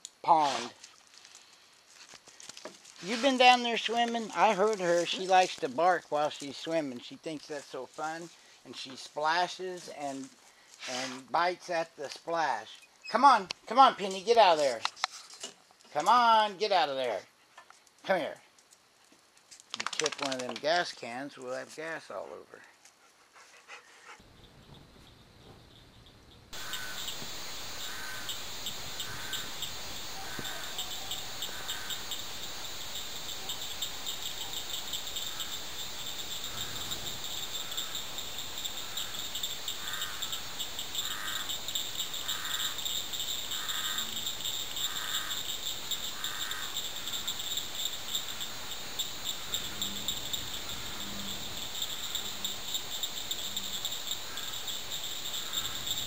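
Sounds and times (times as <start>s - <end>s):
insects trilling: 2.4s - 10.7s, 24.2s - 56.0s.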